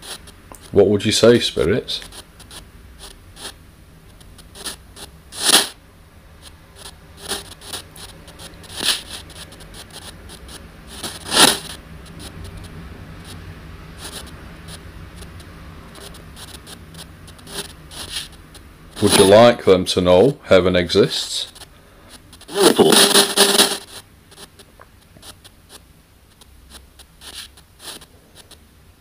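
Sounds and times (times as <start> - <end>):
bursts of hiss: 0.0 - 5.8, 6.4 - 19.5, 21.3 - 28.6
low steady hum: 0.0 - 29.0.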